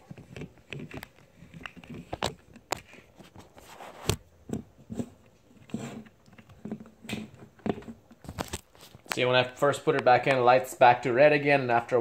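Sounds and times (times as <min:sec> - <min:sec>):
rubbing: 0:00.0 - 0:09.1
handling clicks and knocks: 0:00.0 - 0:09.3.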